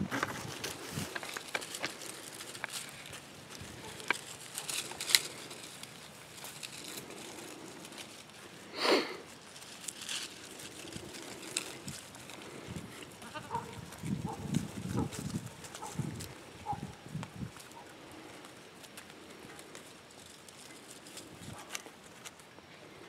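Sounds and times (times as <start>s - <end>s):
twigs snapping and rustling: 0.1s - 22.6s
goat bleat: 13.1s - 13.7s.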